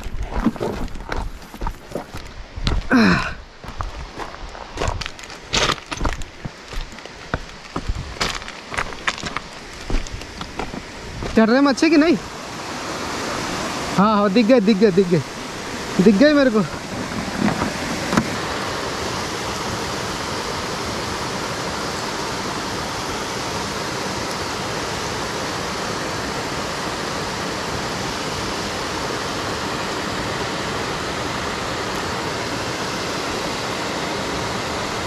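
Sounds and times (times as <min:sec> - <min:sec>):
water pouring down dam wall: 0:11.6 - 0:35.0.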